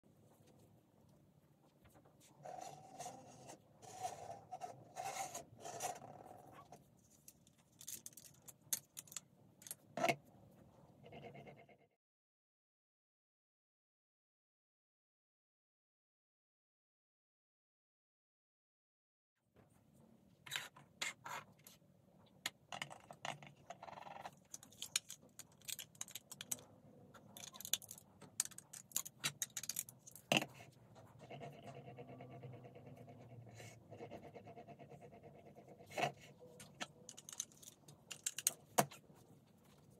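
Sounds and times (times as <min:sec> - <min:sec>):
plastic pieces rubbing: 0:24.0 - 0:26.6, 0:27.2 - 0:30.6, 0:35.9 - 0:39.0
plastic pieces clicking: 0:24.4 - 0:26.6, 0:27.4 - 0:30.4, 0:36.8 - 0:38.9.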